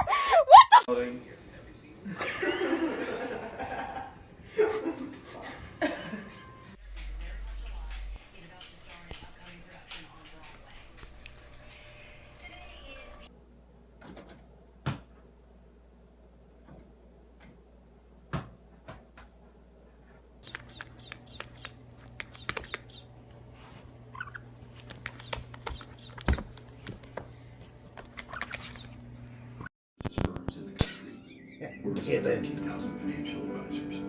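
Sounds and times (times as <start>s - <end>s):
steady low hum: 5.5s - 13.9s.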